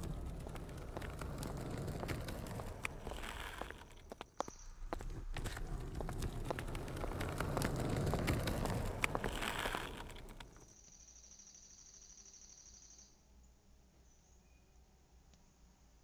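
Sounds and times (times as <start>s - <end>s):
footsteps walking: 0.0s - 10.6s.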